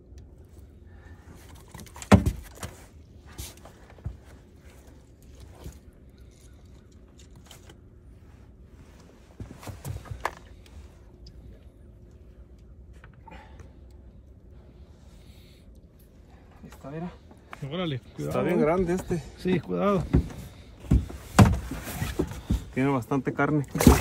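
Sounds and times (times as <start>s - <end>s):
knocks and thumps on boat deck: 18.9s - 22.9s.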